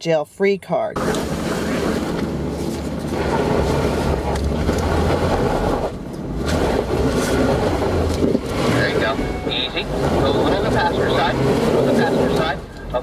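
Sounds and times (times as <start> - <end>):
engine rumbling under load: 0.0 - 13.0.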